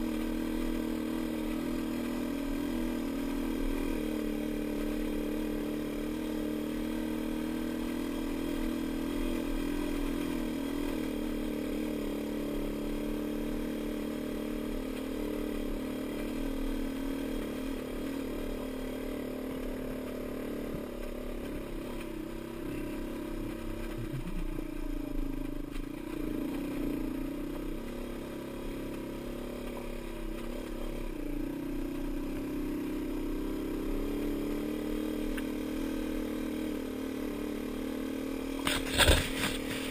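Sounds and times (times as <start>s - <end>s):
dirt bike engine running: 0.0s - 39.9s.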